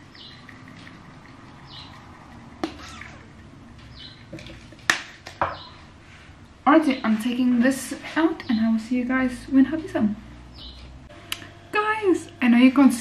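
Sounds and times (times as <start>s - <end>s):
bird chirping: 0.1s - 1.0s, 1.6s - 2.2s, 2.8s - 4.4s, 5.4s - 5.9s, 10.5s - 10.9s.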